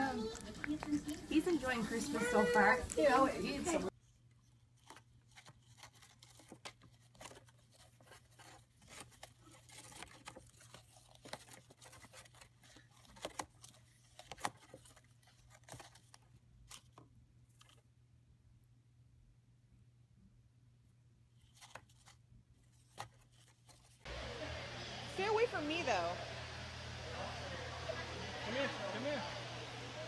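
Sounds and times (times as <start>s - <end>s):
steady low hum: 24.1s - 30.0s.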